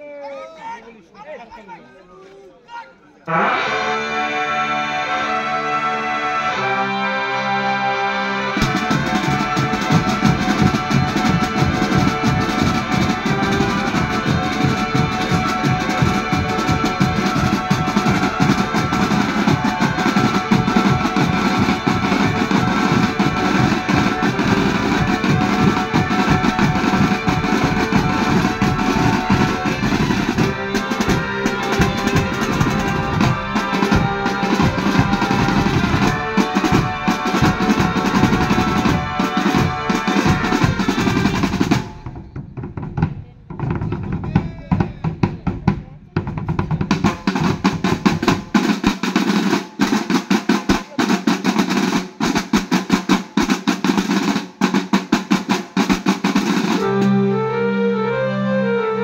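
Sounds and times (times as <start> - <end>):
sustained pitched melody: 3.3 - 41.6, 56.7 - 59.0
keyboard-like melody: 3.3 - 42.0, 56.5 - 59.0
drum band playing: 3.3 - 57.2.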